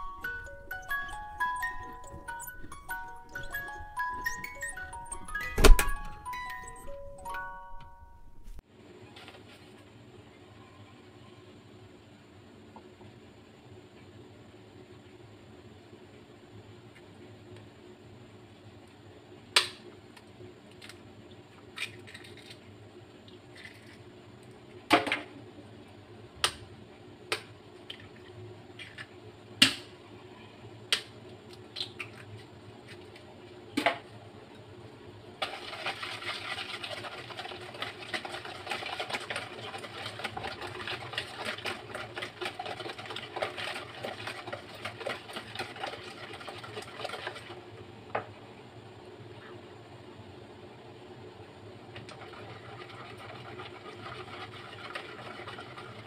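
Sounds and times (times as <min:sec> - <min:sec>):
whisk beating eggs: 0:35.4 - 0:47.6, 0:52.1 - 0:56.0.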